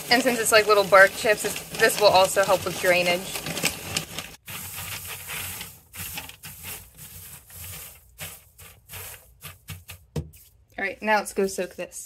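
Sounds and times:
coconut husk chips rustling: 0.0s - 10.1s
plastic bag crinkling: 0.0s - 10.1s.

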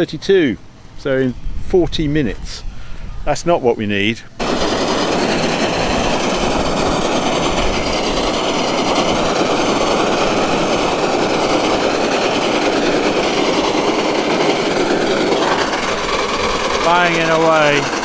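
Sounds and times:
combine harvester running: 4.4s - 18.0s.

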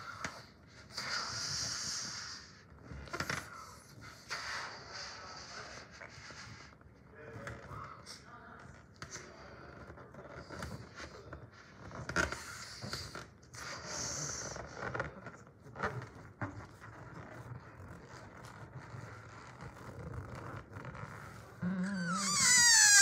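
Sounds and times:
balloon neck squealing: 17.3s - 23.0s.

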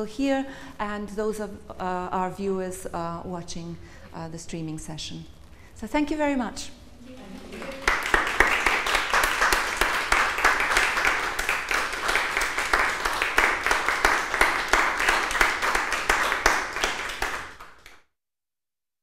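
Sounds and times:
audience applauding: 7.1s - 18.0s.

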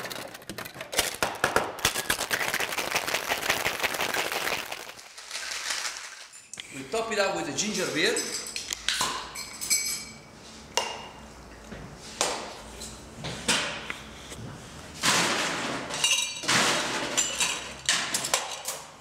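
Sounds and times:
glassware and shaker clinking: 9.3s - 10.2s.

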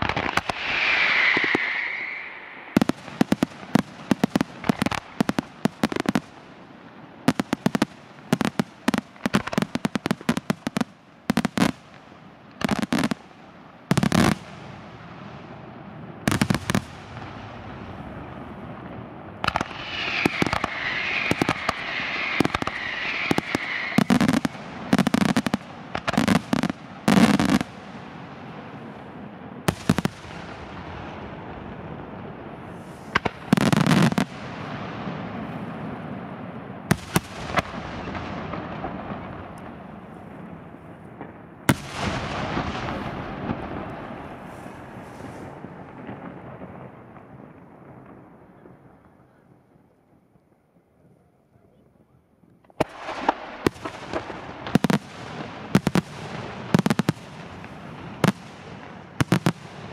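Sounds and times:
fireworks hissing: 0.0s - 6.3s, 19.4s - 27.8s, 32.6s - 34.7s, 44.0s - 46.1s
fireworks bursting with sharp bangs: 0.0s - 50.4s, 52.6s - 59.9s.

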